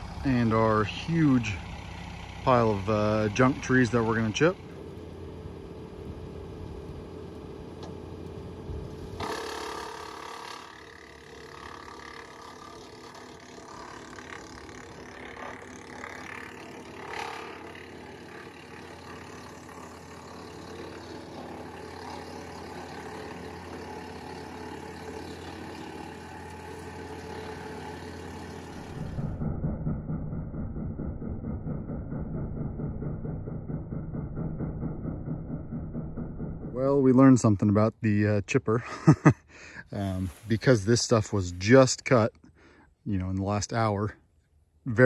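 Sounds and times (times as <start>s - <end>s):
wood chipper chipping branches: 0.0s - 37.0s.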